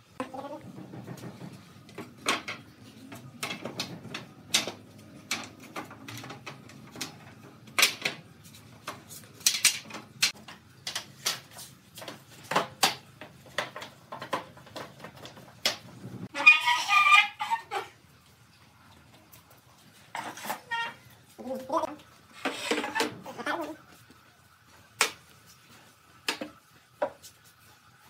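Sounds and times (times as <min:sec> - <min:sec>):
wooden slats knocking and clattering: 0:00.6 - 0:11.4.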